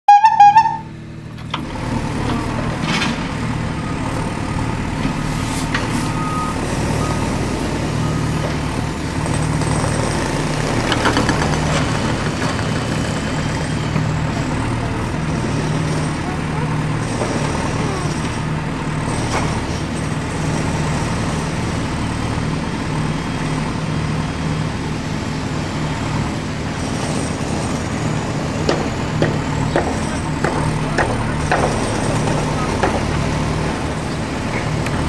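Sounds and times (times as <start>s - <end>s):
loud beeping tone: 0.1s - 1.0s
steady engine hum: 0.1s - 35.0s.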